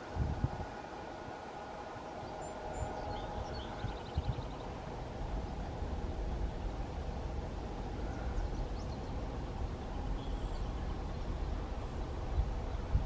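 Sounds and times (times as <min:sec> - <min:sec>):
distant freight train rumbling: 0:00.0 - 0:13.0
faint bird chirps: 0:02.1 - 0:04.8, 0:08.0 - 0:12.9.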